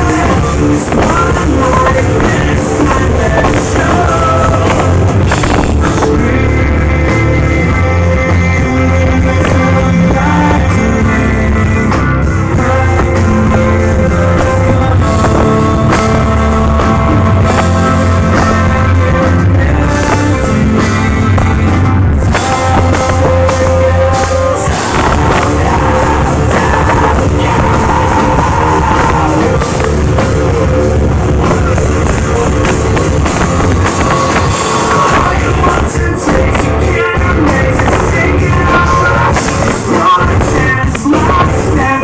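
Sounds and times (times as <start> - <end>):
live rock band playing: 0.0 - 42.0
recorded lead vocal: 0.0 - 42.0.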